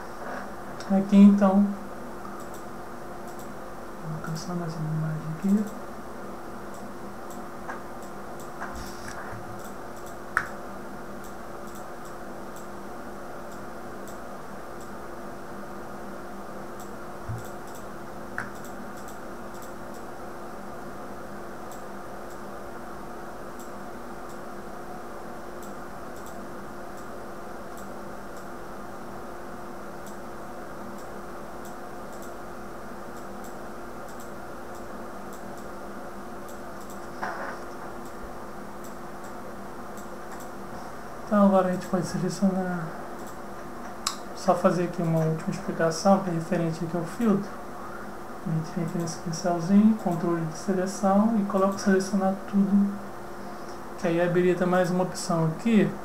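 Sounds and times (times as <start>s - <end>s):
steady low hum: 0.0s - 56.0s
computer mouse clicks: 2.2s - 3.6s, 6.7s - 10.6s, 11.2s - 12.7s, 13.5s - 14.2s, 16.8s - 20.1s, 21.7s - 22.4s, 23.6s - 24.4s, 25.6s - 27.1s, 27.7s - 28.5s, 30.9s - 32.4s, 33.1s - 35.8s, 36.4s - 38.2s, 38.8s - 40.6s, 43.2s - 44.3s.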